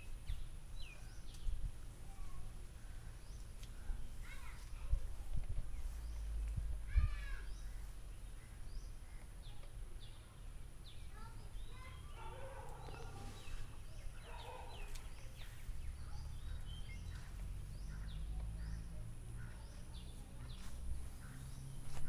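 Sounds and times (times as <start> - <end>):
birds chattering: 0.0 - 22.0
birds chirping: 0.0 - 22.0
wind on microphone: 4.8 - 7.4.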